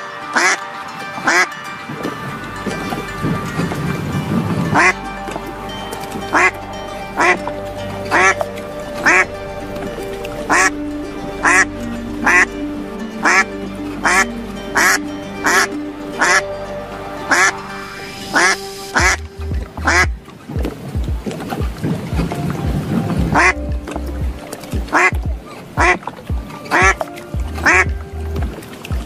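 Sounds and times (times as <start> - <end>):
background music with held notes: 0.0 - 29.0
duck quacks: 0.4 - 0.6, 18.3 - 19.2, 19.8 - 20.1, 23.4 - 23.6, 24.9 - 25.2, 25.8 - 26.0, 27.6 - 27.9.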